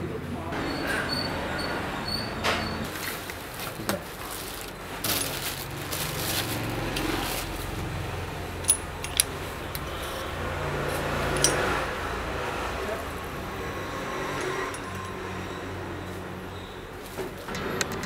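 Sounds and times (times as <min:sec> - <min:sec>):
plastic and cardboard crinkling: 0:02.9 - 0:08.1.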